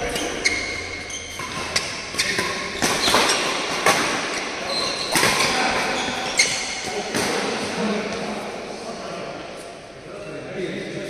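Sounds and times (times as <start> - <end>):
high squeak: 0.0 - 3.5, 4.3 - 6.9
racket hitting shuttlecock: 0.0 - 7.7.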